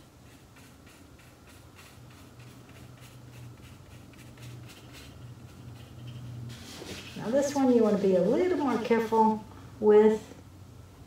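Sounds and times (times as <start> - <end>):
paintbrush dabbing on board: 0.0 - 9.4.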